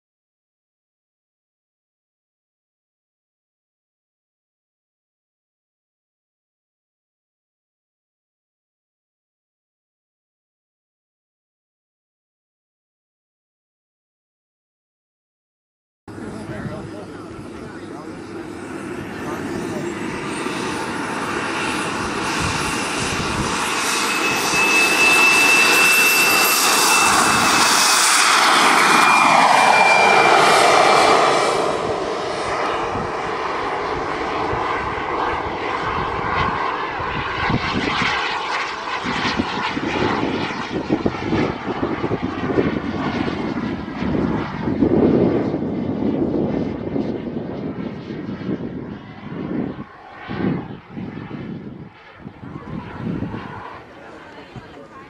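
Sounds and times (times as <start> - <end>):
wind buffeting microphone: 16.1 - 38.2, 38.9 - 55.0
jet turbine engine whine: 16.1 - 55.0.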